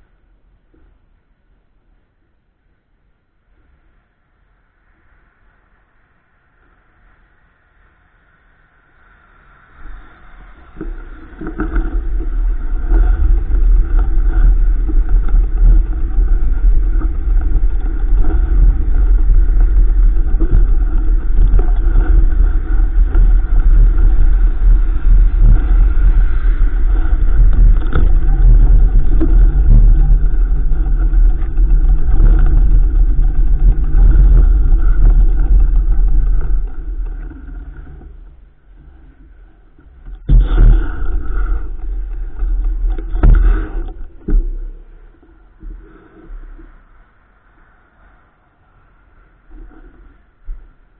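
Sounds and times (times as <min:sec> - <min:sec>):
wind rumble on microphone: 0:00.0 - 0:50.9
knocks and rattles: 0:26.8 - 0:38.2.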